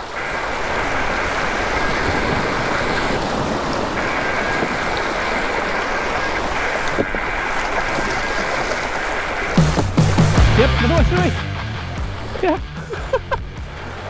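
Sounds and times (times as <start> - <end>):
sea waves washing over rocks: 0.0 - 10.6.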